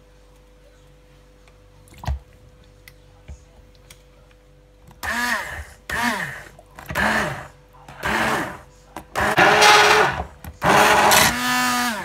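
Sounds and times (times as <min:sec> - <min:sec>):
stick blender whining: 0:05.0 - 0:12.0.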